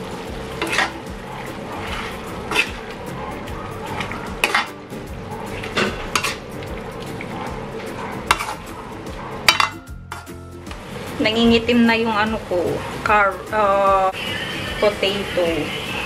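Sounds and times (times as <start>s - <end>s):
sauce sizzling: 0.0s - 16.0s
metal spatula scraping a wok: 0.6s - 3.0s, 5.4s - 6.5s, 7.8s - 8.8s.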